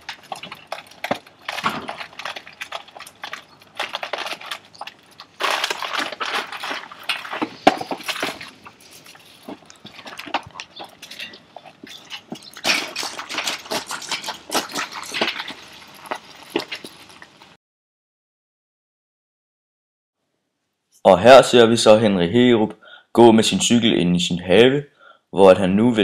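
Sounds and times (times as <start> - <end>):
rustling and clattering: 0.0 - 17.5.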